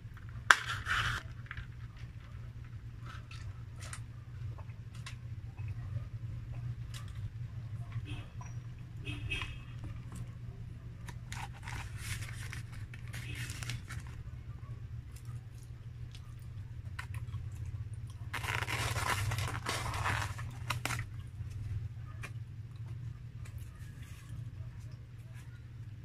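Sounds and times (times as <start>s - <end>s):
steady low hum: 0.0s - 26.0s
chewing crunchy food: 11.0s - 26.0s.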